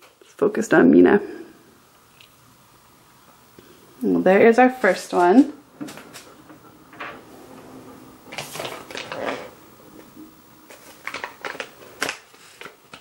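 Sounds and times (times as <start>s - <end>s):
plastic toy pieces rustling: 10.7s - 13.0s.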